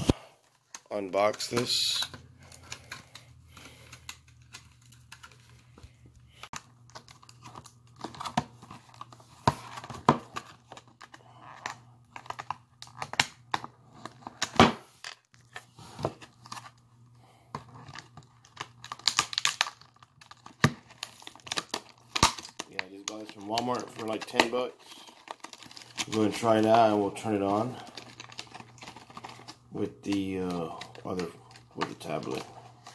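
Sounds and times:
stiff plastic crinkling and clicking: 17.6 - 32.9
plastic seal tearing: 17.9 - 26.4.

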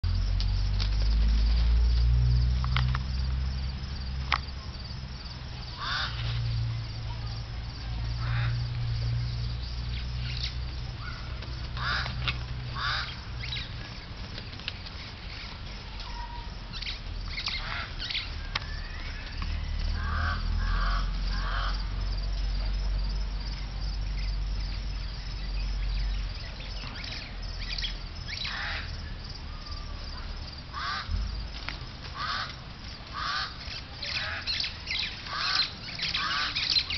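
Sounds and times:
honking bird calls: 32.2 - 36.9.

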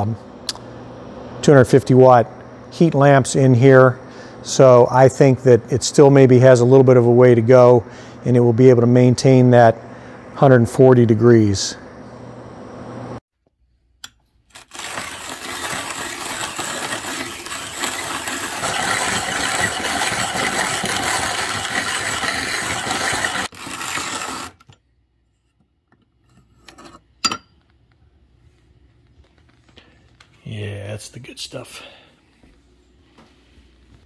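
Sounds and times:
coffee grinder grinding beans: 14.5 - 24.8.

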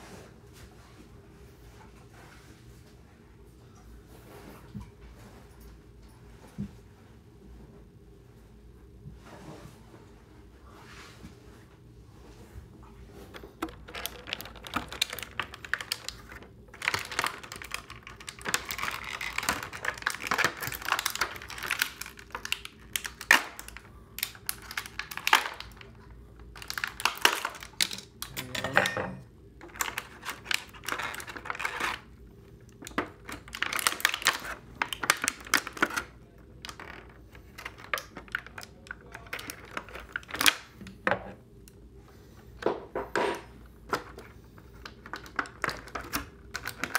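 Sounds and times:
plastic packaging crackling: 13.4 - 28.6, 29.6 - 40.8, 44.0 - 46.9.

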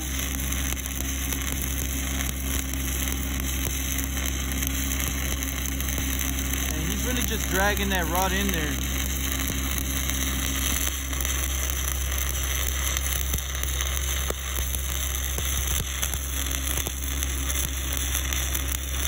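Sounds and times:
welding arc crackling hiss: 0.0 - 19.0.

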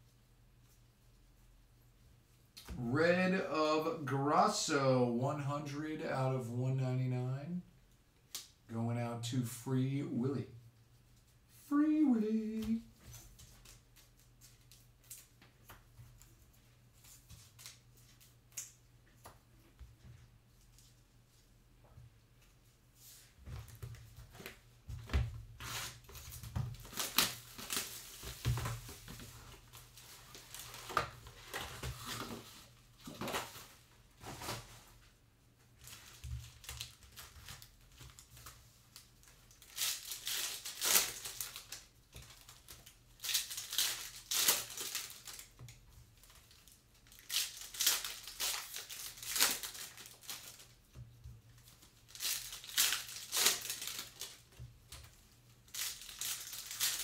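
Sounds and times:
wrappers crinkling and tearing: 25.6 - 34.7, 35.8 - 57.0.

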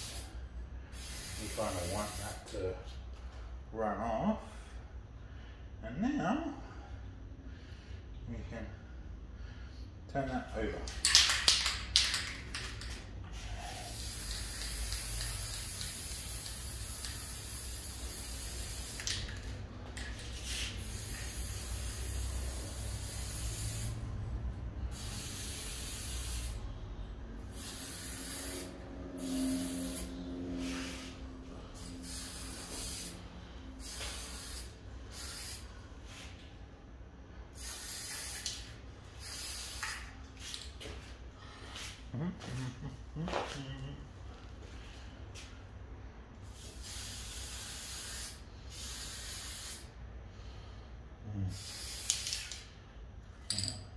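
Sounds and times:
spray paint can hissing: 0.0 - 0.3, 0.9 - 2.4, 10.9 - 24.0, 24.9 - 26.6, 27.4 - 31.2, 31.8 - 33.2, 33.8 - 36.2, 37.5 - 40.7, 46.4 - 49.9, 51.5 - 52.7.

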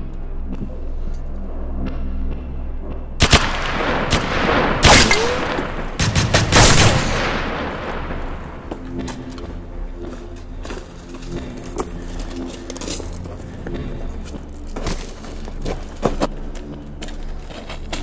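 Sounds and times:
background music: 0.0 - 18.0
rifle gunshots with echo: 3.2 - 8.7.

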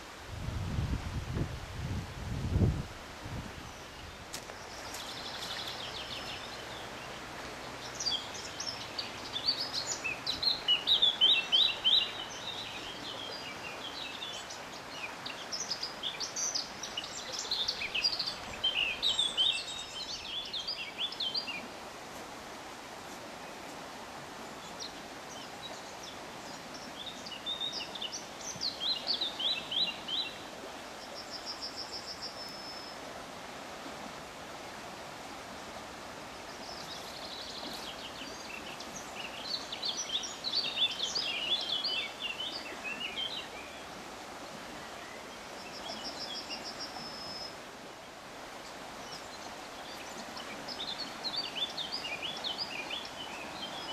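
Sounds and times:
steady background hiss: 0.0 - 53.9
songbird singing: 3.4 - 22.3, 23.0 - 33.1, 36.2 - 53.9.

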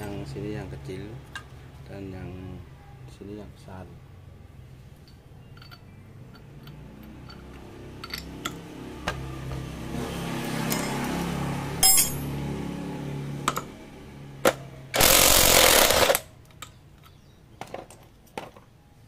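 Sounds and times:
impact wrench hammering: 14.4 - 16.2.

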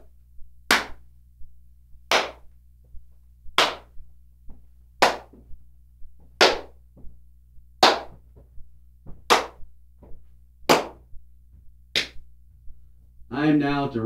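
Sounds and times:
hand claps with room echo: 0.7 - 1.0, 2.1 - 2.6, 3.5 - 5.5, 6.2 - 6.8, 7.8 - 8.5, 9.1 - 11.1, 11.9 - 12.2.

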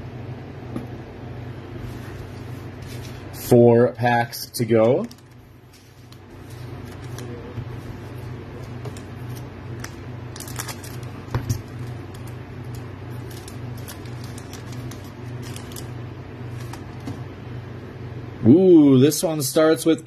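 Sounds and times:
steady low hum: 0.0 - 20.0
foil pack crinkling: 5.0 - 17.0.

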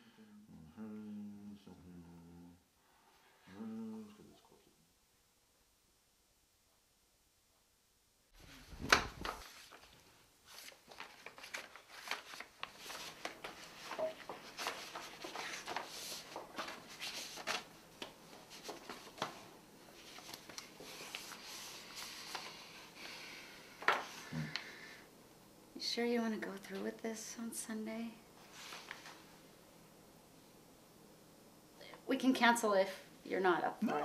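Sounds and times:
paper rustling and crinkling: 8.4 - 22.7.

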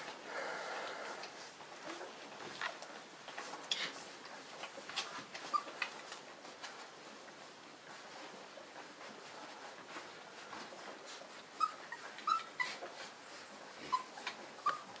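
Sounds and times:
soft shuffling: 0.0 - 15.0
puppies whimpering in high squeaks: 5.4 - 6.1, 11.0 - 15.0.

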